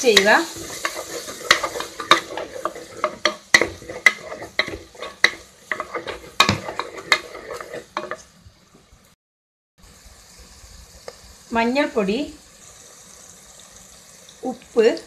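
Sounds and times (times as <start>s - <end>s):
spoon stirring and scraping pot: 0.0s - 8.4s
light frying sizzle: 0.0s - 9.2s, 9.8s - 15.0s.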